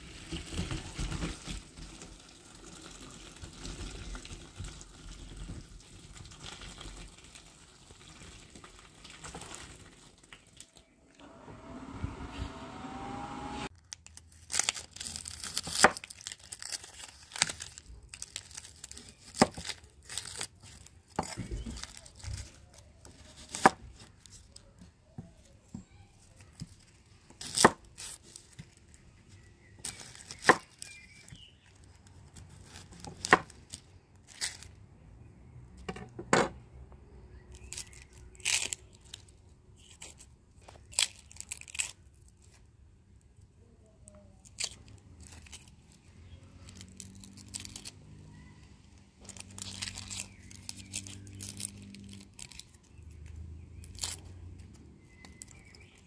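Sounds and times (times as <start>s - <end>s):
sharp tearing crinkling snaps: 13.7s - 24.7s, 37.5s - 42.7s, 44.4s - 48.1s, 48.9s - 56.0s.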